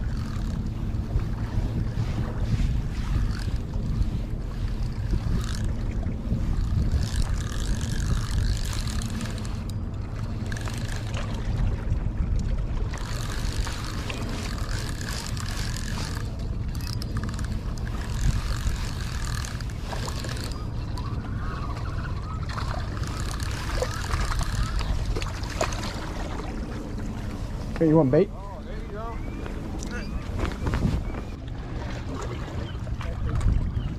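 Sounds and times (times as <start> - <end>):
wind buffeting microphone: 0.0 - 33.9.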